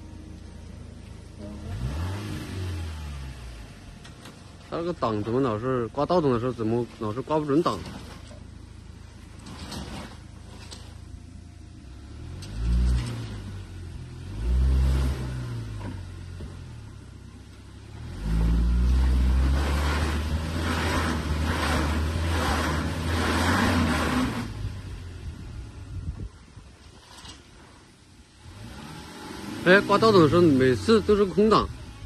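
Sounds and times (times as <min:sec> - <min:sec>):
suv engine revving: 0:00.0 - 0:32.0
tyres churning mud: 0:04.2 - 0:08.6, 0:09.2 - 0:11.1, 0:18.2 - 0:24.6, 0:28.5 - 0:31.8.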